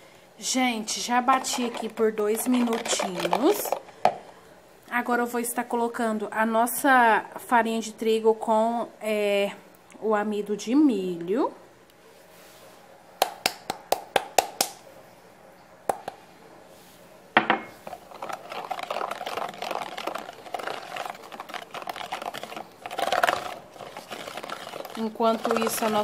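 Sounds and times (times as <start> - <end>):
whisk beating batter in bowl: 0.8 - 3.9, 17.8 - 26.0.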